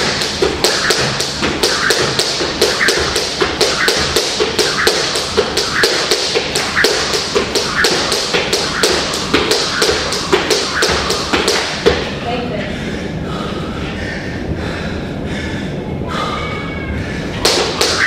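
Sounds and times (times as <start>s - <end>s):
rhythmic sharp tapping: 0.0s - 12.2s, 17.4s - 18.0s.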